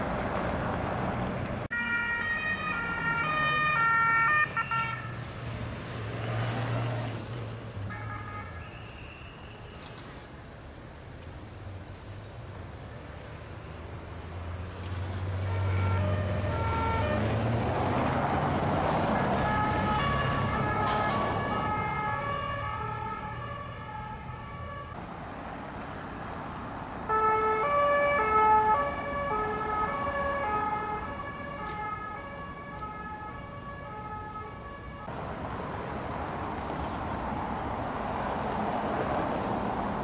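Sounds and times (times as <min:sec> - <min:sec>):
two-tone police sirens: 0:01.6 - 0:05.4, 0:07.9 - 0:09.9, 0:15.2 - 0:25.0, 0:27.0 - 0:35.2
vehicle engine passing: 0:13.7 - 0:24.8.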